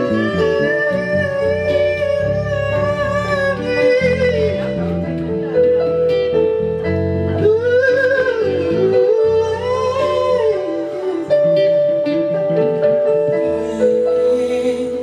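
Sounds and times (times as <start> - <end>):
man singing: 0.0 - 5.1, 7.4 - 11.8, 13.5 - 15.0
guitar accompaniment: 0.0 - 15.0.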